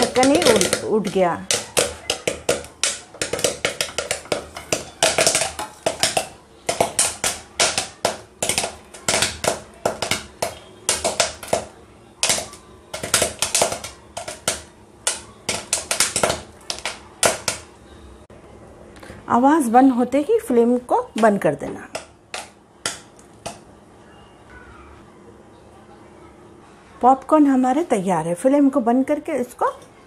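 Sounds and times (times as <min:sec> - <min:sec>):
popcorn popping in a pot: 0:00.0 - 0:17.9, 0:21.1 - 0:23.7.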